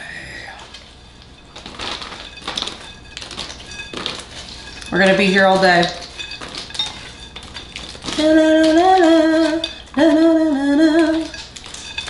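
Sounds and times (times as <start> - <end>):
spoon clinking in glass bowl: 1.4 - 12.0
woman humming: 8.2 - 11.3.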